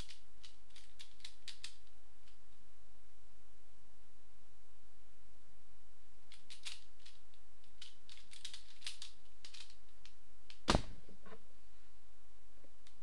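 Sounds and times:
plastic puzzle clicking: 0:00.0 - 0:01.9, 0:06.3 - 0:10.6.

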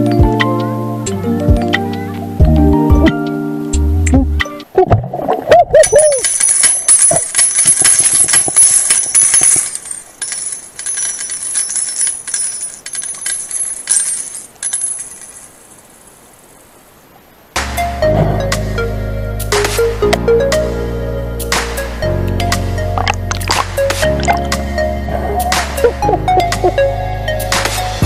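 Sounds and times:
faint hiss: 0:00.3 - 0:28.0
underwater crackling and clicking: 0:23.0 - 0:24.6
wavering bubble-like tones: 0:23.0 - 0:26.8.

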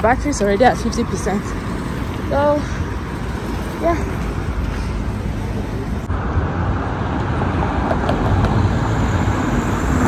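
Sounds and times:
road traffic rumble: 0:00.0 - 0:10.0.

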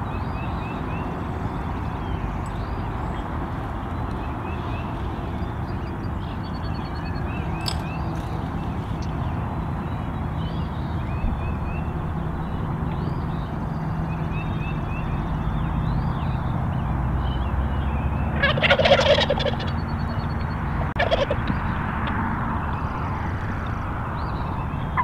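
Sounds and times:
faint songbird chirps: 0:00.0 - 0:18.6
turkey gobbling: 0:18.4 - 0:19.8, 0:20.9 - 0:21.4.

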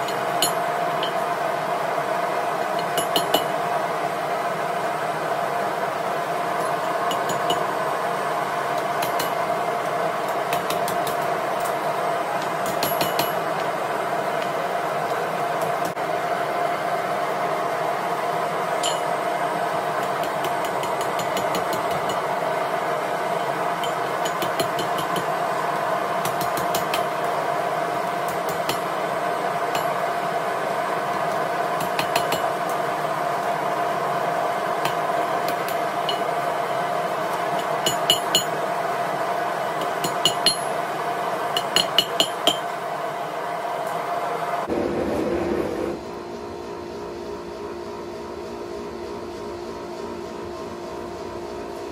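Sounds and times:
hammer ringing on anvil: 0:00.0 - 0:01.2, 0:02.9 - 0:03.6, 0:06.9 - 0:07.7, 0:12.6 - 0:13.5, 0:18.8 - 0:19.2, 0:37.8 - 0:38.6, 0:39.9 - 0:40.8, 0:41.6 - 0:42.7
gas forge burner hissing: 0:00.0 - 0:47.4.

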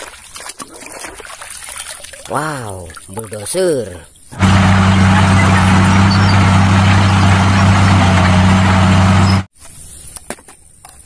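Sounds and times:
bulldozer diesel engine droning: 0:04.4 - 0:09.5.

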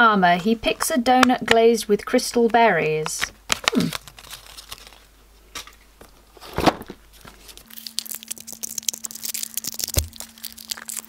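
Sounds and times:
plastic wrapping crinkling and tearing: 0:03.5 - 0:05.8, 0:06.4 - 0:11.0.

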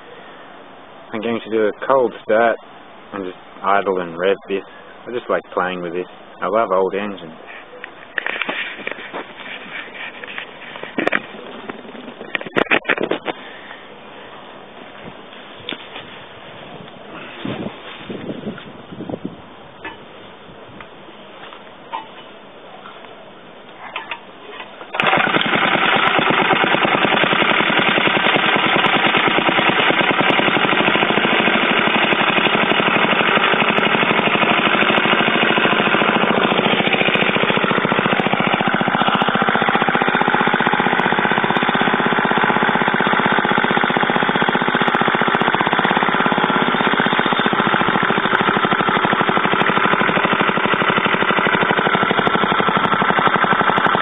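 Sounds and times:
small engine running: 0:24.9 - 0:54.0
starter rope pull: 0:24.9 - 0:54.0.

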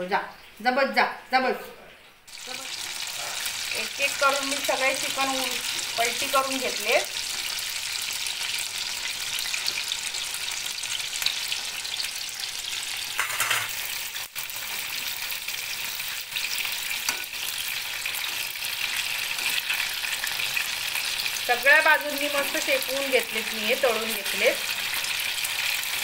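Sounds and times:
chicken sizzling in hot oil: 0:02.3 - 0:26.0
spoon scraping pan: 0:13.1 - 0:14.0.

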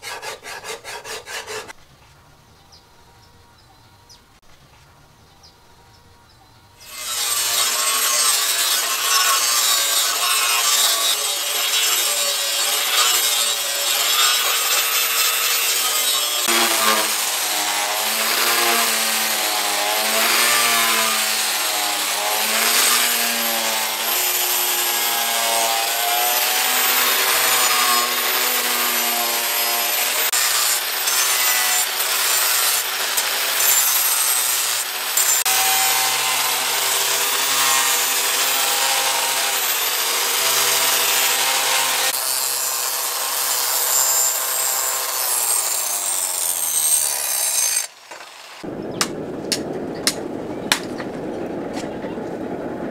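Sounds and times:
angle grinder grinding metal: 0:00.0 - 0:01.8, 0:06.8 - 0:48.7.

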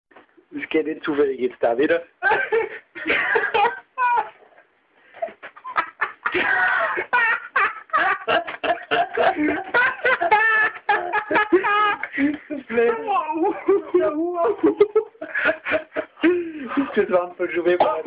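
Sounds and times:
high breathless laughter: 0:02.2 - 0:14.0, 0:14.6 - 0:17.0.

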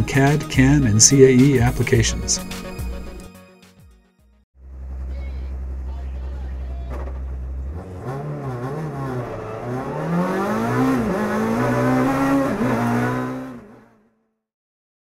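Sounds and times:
racing car engine revving: 0:04.7 - 0:14.1.

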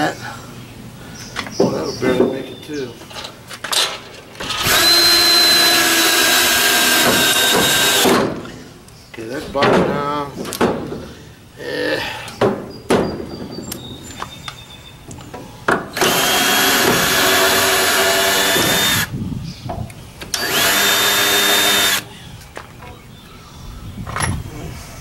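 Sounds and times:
cordless drill driving screws: 0:04.4 - 0:08.2, 0:16.0 - 0:19.1, 0:20.3 - 0:22.1.

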